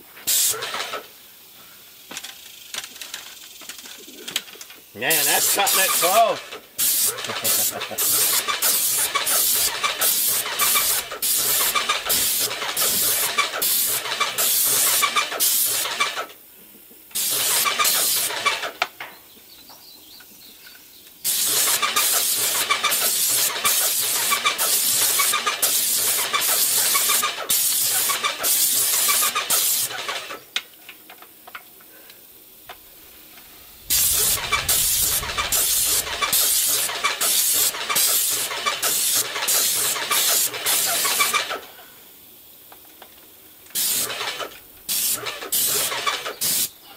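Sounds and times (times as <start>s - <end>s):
paint spray hiss: 0.1s - 4.4s, 5.0s - 18.6s, 21.2s - 30.5s, 31.9s - 46.8s
paint sprayer pump pulsing: 5.1s - 16.3s, 17.1s - 18.8s, 21.3s - 30.4s, 33.8s - 41.7s, 43.7s - 46.7s.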